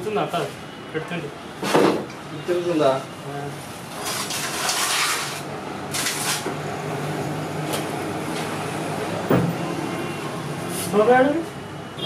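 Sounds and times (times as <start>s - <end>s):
thump: 9.3s - 9.6s.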